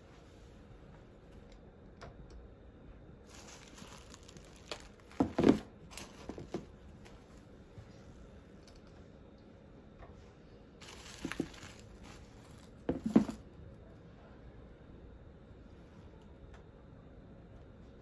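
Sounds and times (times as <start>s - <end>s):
sneakers handling rustle: 10.8s - 13.4s.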